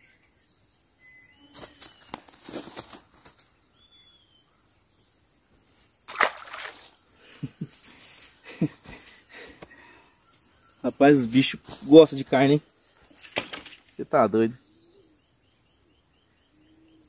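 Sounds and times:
whistled bird calls: 0:03.8 - 0:04.6
water splashing and sloshing: 0:06.1 - 0:07.0.

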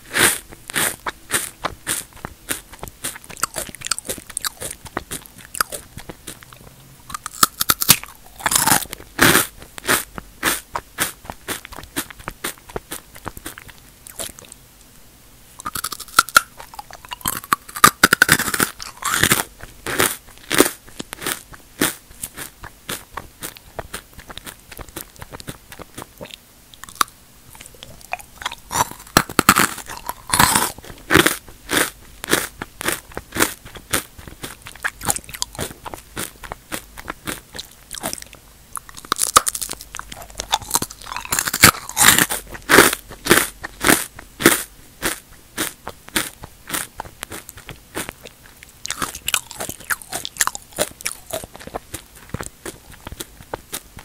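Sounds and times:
chips being crunched: 0:07.2 - 0:09.5, 0:15.6 - 0:21.3, 0:26.8 - 0:33.0, 0:39.0 - 0:43.4.

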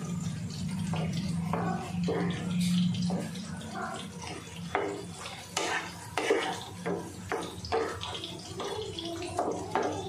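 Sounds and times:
spatula scraping a wok: 0:00.8 - 0:08.8.

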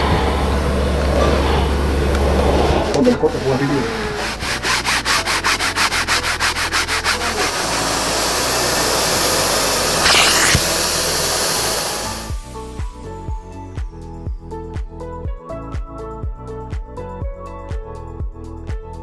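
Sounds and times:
extractor suction hiss: 0:07.5 - 0:12.8
short hissing strokes: 0:10.0 - 0:10.8.

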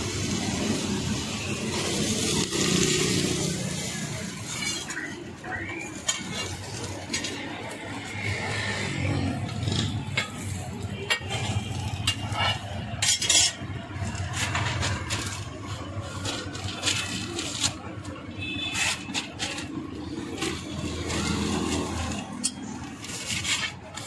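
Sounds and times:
metal spatula scraping griddle: 0:00.1 - 0:24.0.

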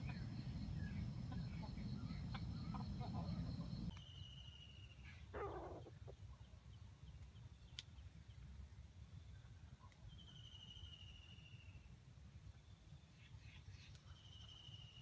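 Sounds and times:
insects chirring: 0:00.0 - 0:03.9
low rumble: 0:00.0 - 0:03.9.

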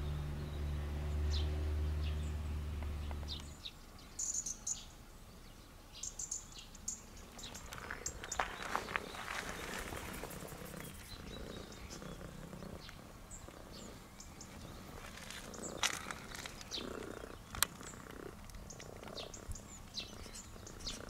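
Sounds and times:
cat purring: 0:07.8 - 0:21.0.

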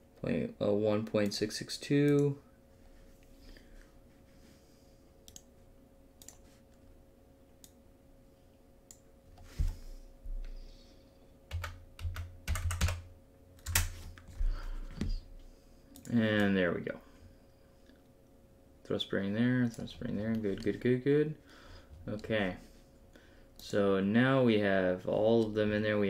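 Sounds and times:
faint steady hum: 0:00.0 - 0:26.0
keyboard typing: 0:06.2 - 0:06.5, 0:11.5 - 0:14.0.

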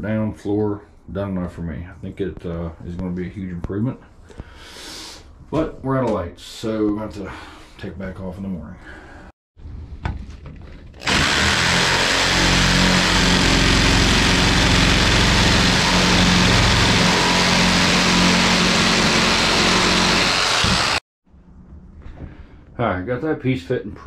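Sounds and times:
jigsaw cutting wood: 0:11.0 - 0:21.0.

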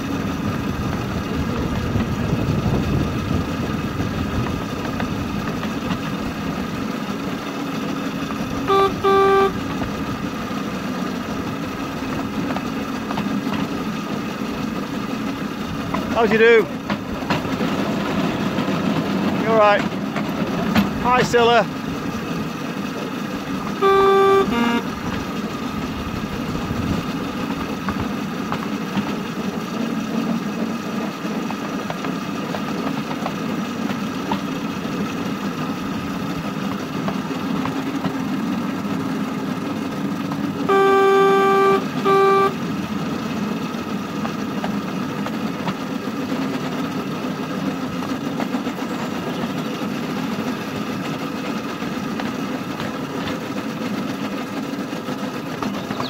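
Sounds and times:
locomotive engine droning: 0:00.0 - 0:56.0
locomotive horn toots: 0:08.5 - 0:10.0, 0:23.5 - 0:25.5, 0:40.6 - 0:42.8.

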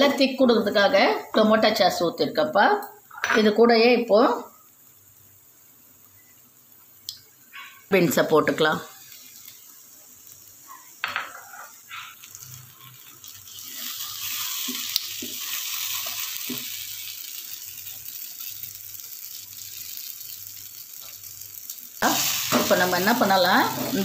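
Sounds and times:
beans sizzling in a pan: 0:00.0 - 0:24.0
spatula scraping pan: 0:11.3 - 0:12.2.

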